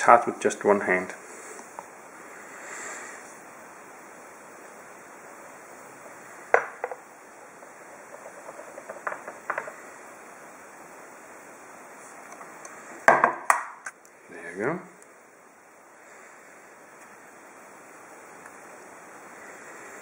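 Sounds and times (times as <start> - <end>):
low steady hiss: 0.0 - 20.0
pitcher knocking on stone countertop: 6.5 - 7.0, 8.1 - 9.7.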